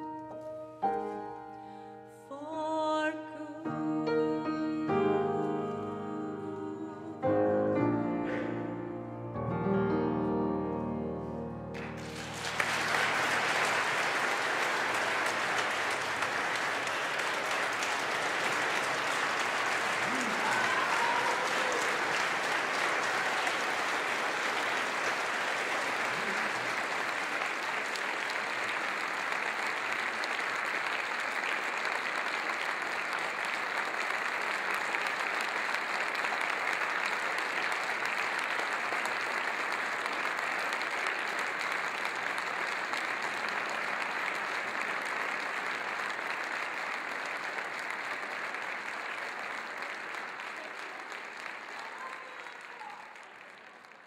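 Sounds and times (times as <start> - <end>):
audience applauding: 8.2 - 8.7, 11.7 - 54.0.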